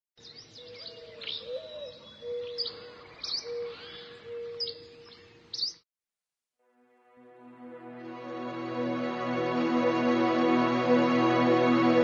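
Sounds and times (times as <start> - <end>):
birds chirping: 0.2 - 5.8.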